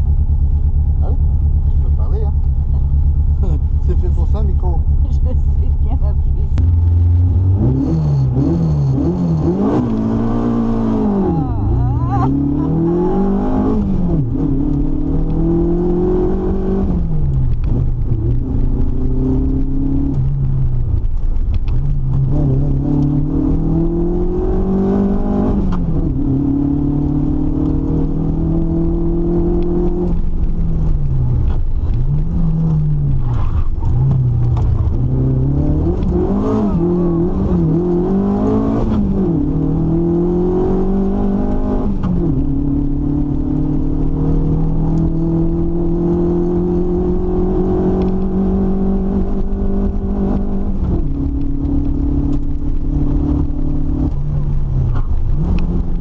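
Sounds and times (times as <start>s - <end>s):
race car engine revving: 0.9s - 56.0s.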